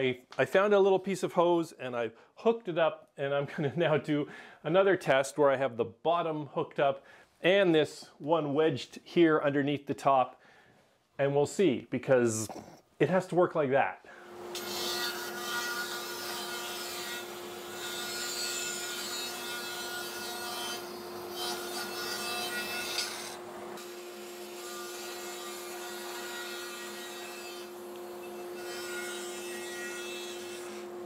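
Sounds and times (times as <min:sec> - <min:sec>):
bandsaw humming: 0:14.1 - 0:31.0
saw blade cutting wood: 0:14.5 - 0:31.0.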